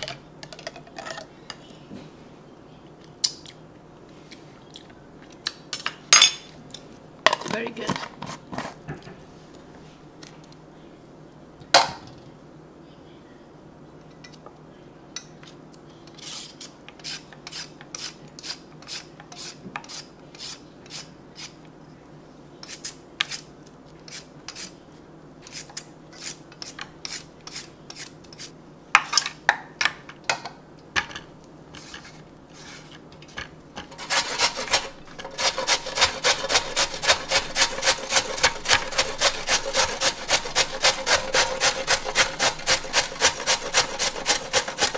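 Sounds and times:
peeler scraping carrot: 16.1s - 21.6s, 25.4s - 28.5s, 33.9s - 44.9s
carrot rasping on box grater: 33.9s - 44.9s.

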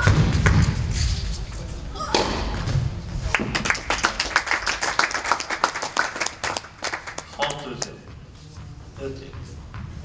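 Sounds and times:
audience hand clapping: 3.3s - 8.0s.

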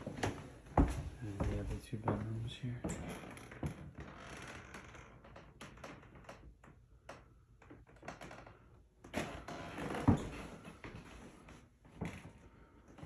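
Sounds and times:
footsteps on hardwood floor: 0.0s - 4.1s, 9.7s - 12.4s.

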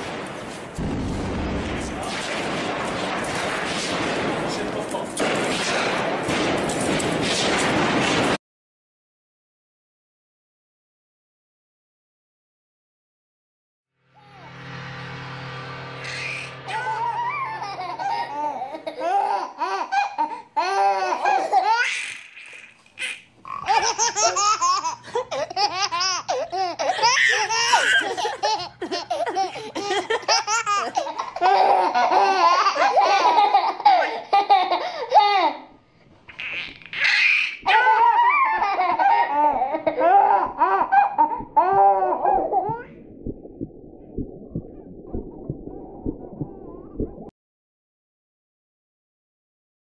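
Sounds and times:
low steady drone: 14.0s - 19.8s
person laughing: 23.7s - 35.3s.

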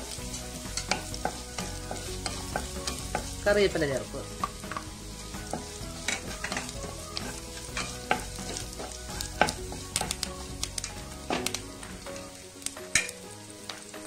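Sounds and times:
vegetables sizzling in hot oil: 0.0s - 14.0s
spatula scraping pan: 5.4s - 11.6s.

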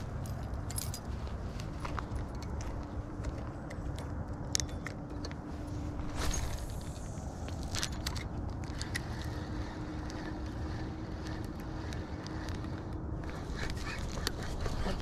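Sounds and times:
fishing reel being cranked: 7.7s - 14.9s.

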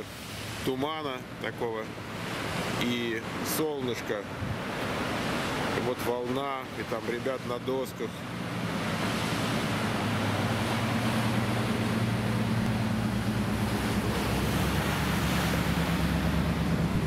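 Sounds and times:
ocean surf breaking on rocks: 0.0s - 17.0s
low steady hum: 8.1s - 17.0s.

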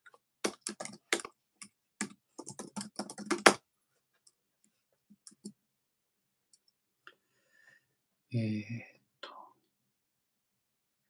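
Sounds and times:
computer keyboard typing: 0.4s - 3.6s, 5.1s - 5.6s.

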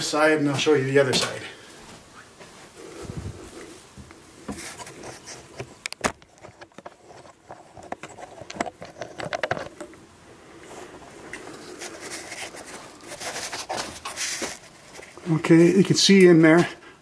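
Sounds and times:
light rustling: 10.6s - 15.3s.

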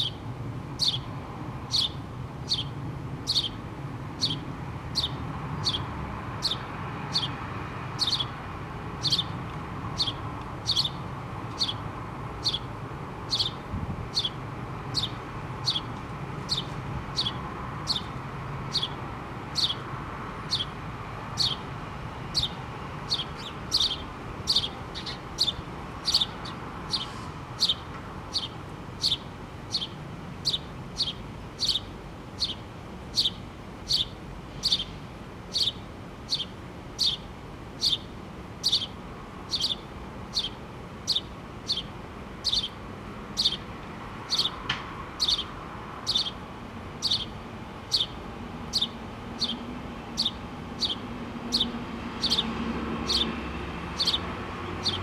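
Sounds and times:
sparrow chirping: 0.0s - 55.0s.

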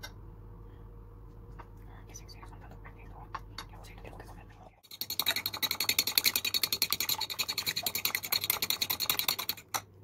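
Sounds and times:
fork beating egg in ceramic bowl: 4.5s - 9.9s.

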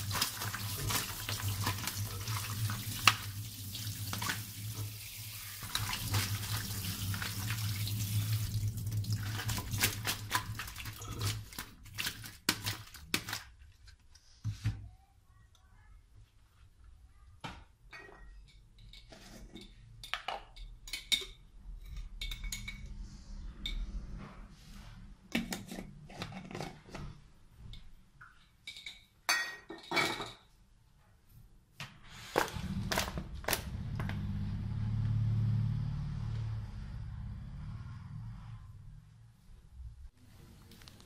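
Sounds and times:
plastic colander and bowl clinking: 0.0s - 3.3s, 9.2s - 13.6s.

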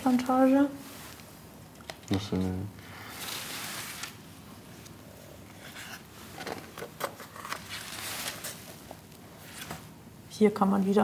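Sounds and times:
paper pages rustling: 3.1s - 4.2s, 4.8s - 9.8s.

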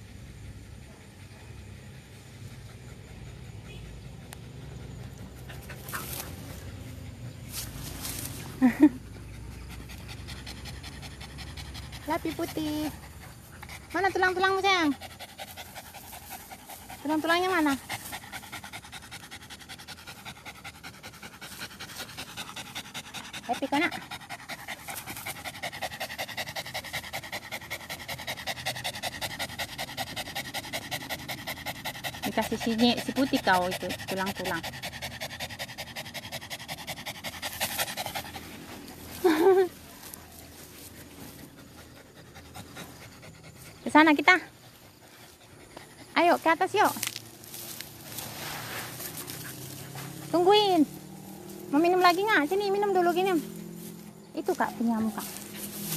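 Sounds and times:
dog panting: 0.0s - 55.9s.

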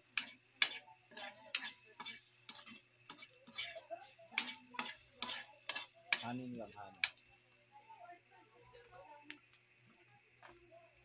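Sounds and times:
metal spatula scraping wok: 0.0s - 7.2s
light sizzle: 0.0s - 11.0s.

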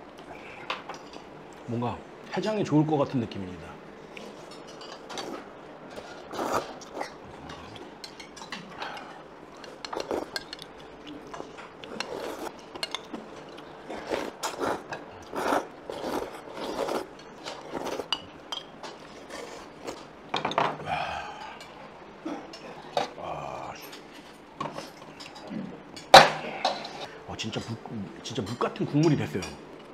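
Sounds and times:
utensils clinking against bowls: 4.4s - 21.8s, 23.8s - 29.6s.

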